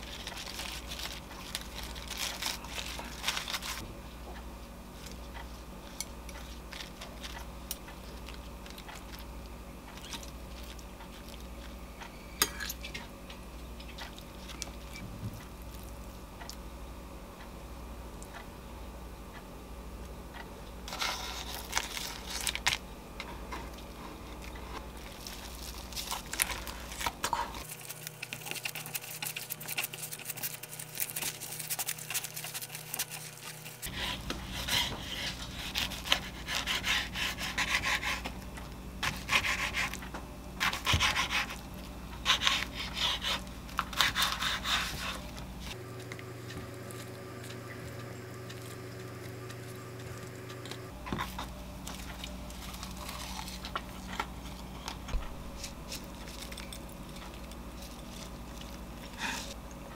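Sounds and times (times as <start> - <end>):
knife sawing through roll: 27.6 - 38.3, 39.0 - 40.0, 40.6 - 41.6, 42.2 - 45.3.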